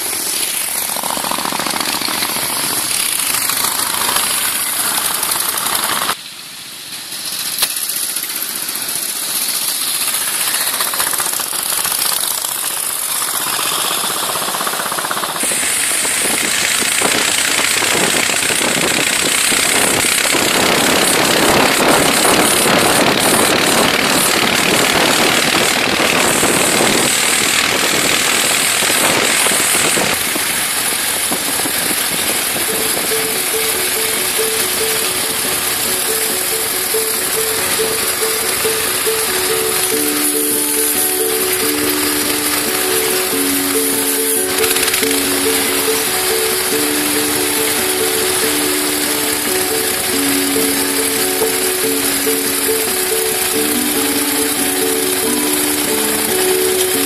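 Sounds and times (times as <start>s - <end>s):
old car engine on board: 0.0s - 57.0s
old motorcycle engines rattling: 0.0s - 57.0s
wind noise: 15.4s - 33.4s.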